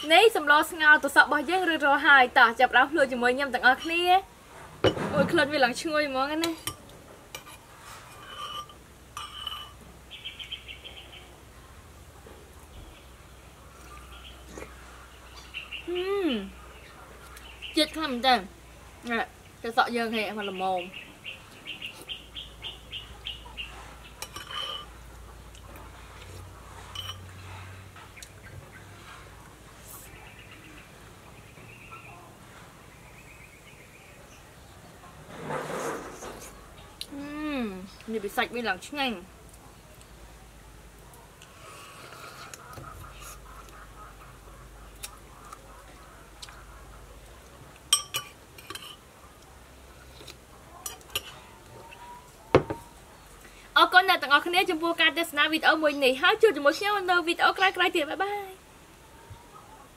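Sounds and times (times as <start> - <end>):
metal spoon clinking against pot: 7.4 - 9.8, 24.2 - 24.9, 26.9 - 27.3, 47.9 - 49.0.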